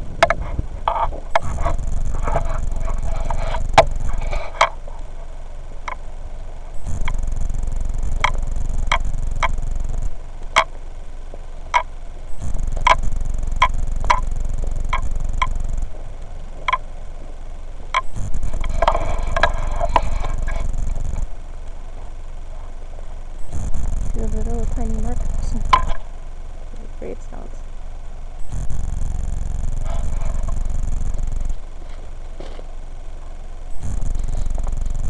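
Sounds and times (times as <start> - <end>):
low rushing noise: 0.0 - 10.6.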